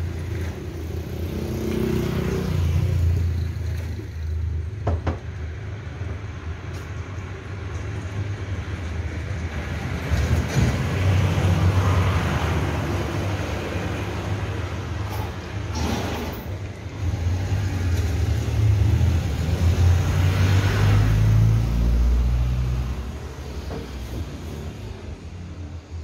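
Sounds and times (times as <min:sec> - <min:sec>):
road traffic: 0:00.0 - 0:26.0
vehicle passing: 0:16.9 - 0:25.6.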